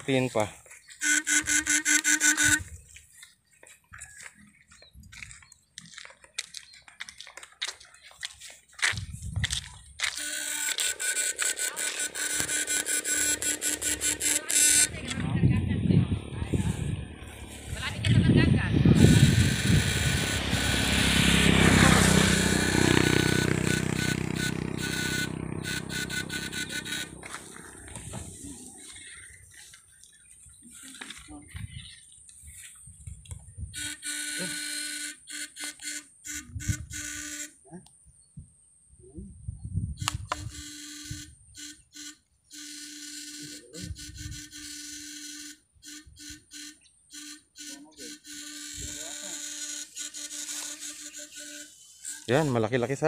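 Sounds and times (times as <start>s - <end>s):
electric fishing unit buzzing: 1.0s - 2.8s, 10.0s - 15.2s, 16.3s - 28.0s, 33.7s - 37.6s, 40.0s - 52.8s
high whine: 10.2s - 28.6s.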